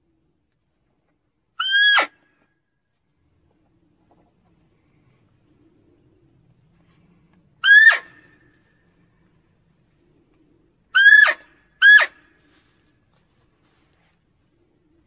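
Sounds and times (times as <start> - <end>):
deer barking: 11.0 - 12.2.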